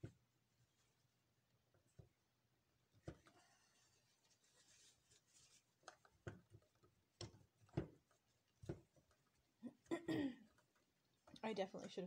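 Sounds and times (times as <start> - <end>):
paper towel rustling: 3.4 - 5.8.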